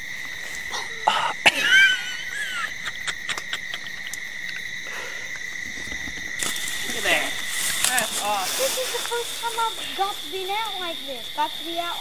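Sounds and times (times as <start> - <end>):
crickets trilling: 0.0 - 12.0.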